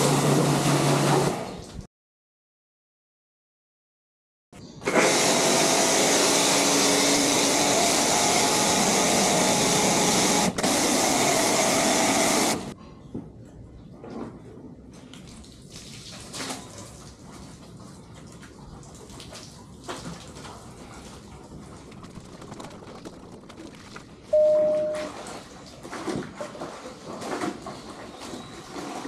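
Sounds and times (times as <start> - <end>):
pressure washer spraying foam: 4.9 - 12.7
wash mitt rubbing and splashing: 15.1 - 24.3.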